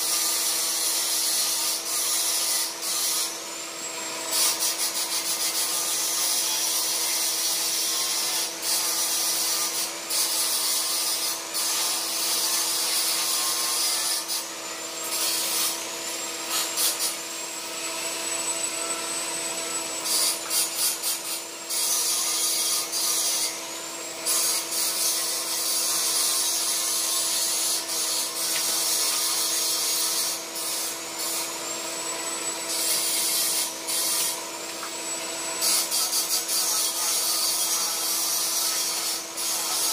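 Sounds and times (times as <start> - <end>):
welding arc hissing: 4.3 - 7.2, 15.0 - 15.8, 16.5 - 17.2, 20.0 - 23.5, 24.3 - 31.4, 32.7 - 34.4.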